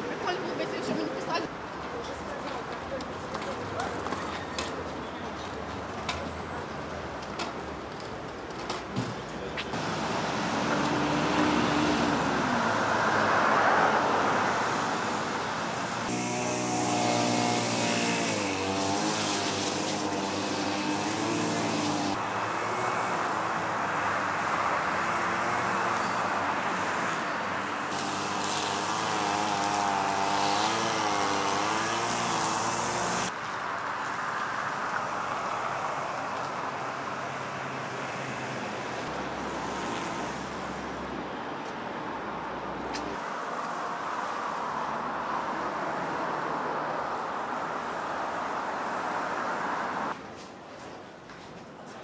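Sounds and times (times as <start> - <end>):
road noise: 0.0 - 52.0.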